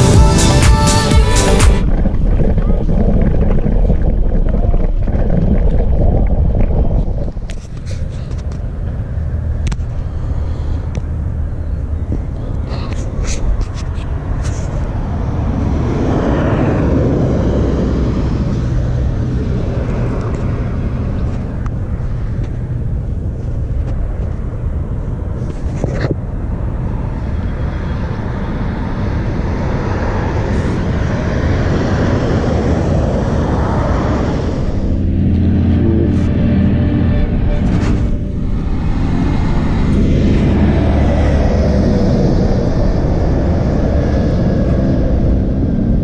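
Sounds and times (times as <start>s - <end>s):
road traffic rushing past: 7.6s - 46.0s
heavy truck engine: 29.2s - 46.0s.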